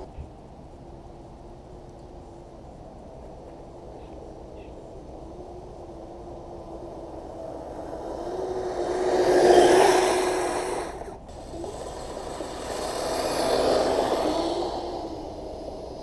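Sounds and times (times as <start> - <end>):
electric motors whining: 5.0 - 16.0.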